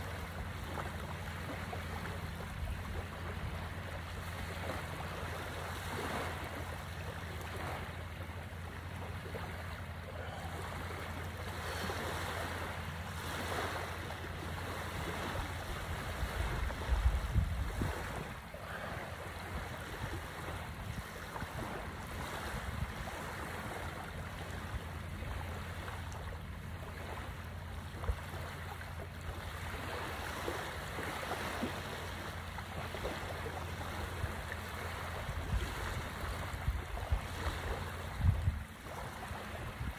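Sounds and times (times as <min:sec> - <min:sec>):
small waves washing onto sand: 0:00.0 - 0:39.9
wind rumble on microphone: 0:13.3 - 0:28.4, 0:29.2 - 0:39.9.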